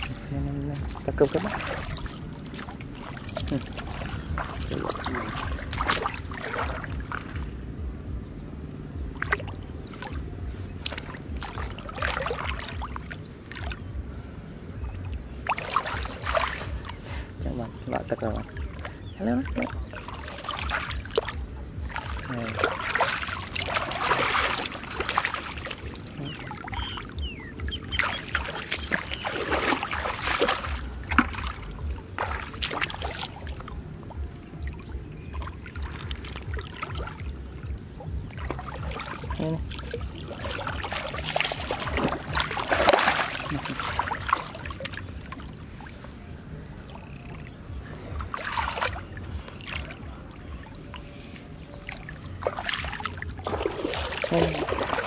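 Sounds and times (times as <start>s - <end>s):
hands splashing in muddy water: 0.0s - 7.5s, 10.8s - 13.8s, 15.4s - 17.0s, 18.4s - 27.0s, 27.8s - 33.8s, 38.3s - 45.6s, 48.2s - 50.2s, 51.9s - 55.0s
water dribbling: 0.0s - 8.3s, 9.0s - 55.0s.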